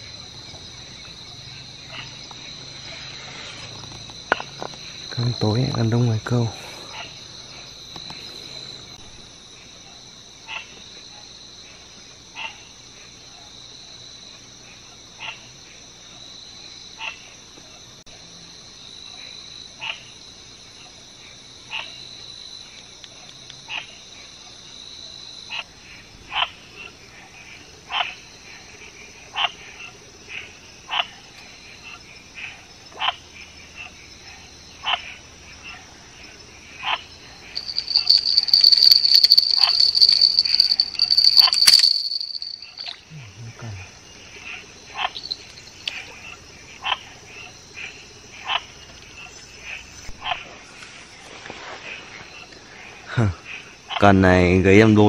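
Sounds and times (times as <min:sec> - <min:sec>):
crickets chirping: 0:00.0 - 0:55.0.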